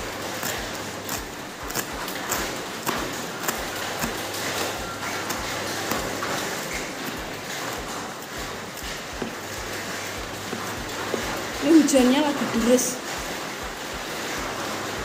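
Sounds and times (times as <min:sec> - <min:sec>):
knife chopping on cutting board: 0:00.2 - 0:06.9.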